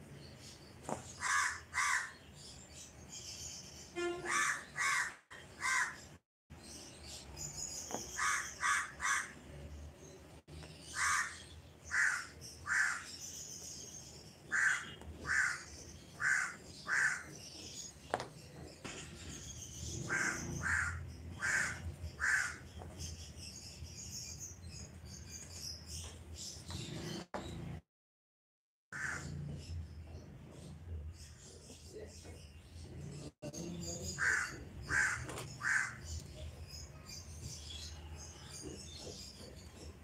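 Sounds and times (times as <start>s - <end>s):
crows cawing: 1.2s - 2.2s, 4.2s - 6.0s, 8.2s - 9.4s, 10.9s - 13.1s, 14.5s - 17.3s, 20.1s - 22.6s, 28.9s - 29.3s, 34.2s - 36.0s.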